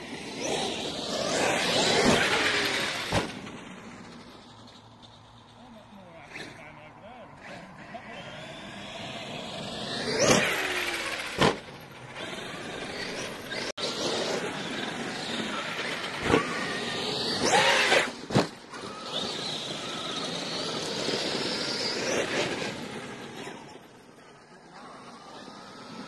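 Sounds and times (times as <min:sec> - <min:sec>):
electric motor whining: 0:00.0 - 0:04.8, 0:07.4 - 0:26.0.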